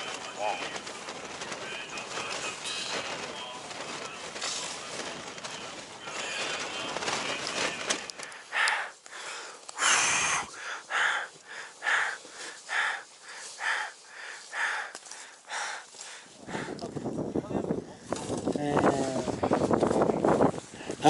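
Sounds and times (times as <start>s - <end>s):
down clothing rustling: 0.0s - 17.2s, 18.0s - 21.0s
rapid breathing: 0.0s - 18.3s, 20.6s - 21.0s
wind noise: 16.3s - 21.0s.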